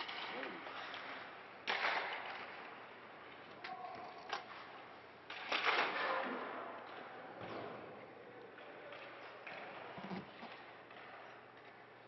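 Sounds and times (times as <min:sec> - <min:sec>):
hockey sticks cracking pucks: 0:00.0 - 0:03.7, 0:04.4 - 0:07.2.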